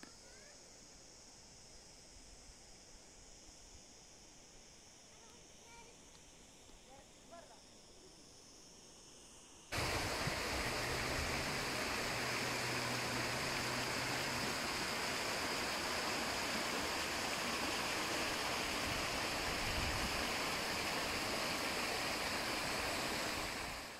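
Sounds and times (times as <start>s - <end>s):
stream running over rocks: 9.8s - 23.9s.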